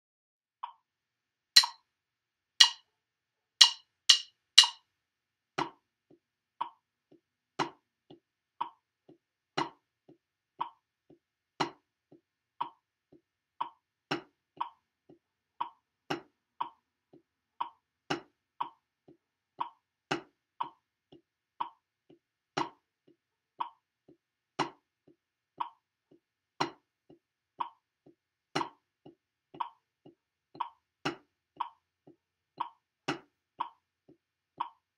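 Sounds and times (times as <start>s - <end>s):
sticks on practice pad: 1.6s - 1.8s, 2.6s - 2.8s, 3.6s - 4.8s
metronome click: 3.6s - 4.8s.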